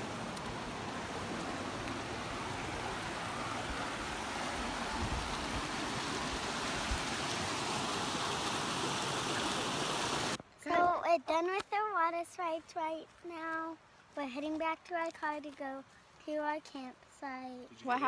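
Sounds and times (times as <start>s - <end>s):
creek water rushing over rocks: 0.0s - 10.4s.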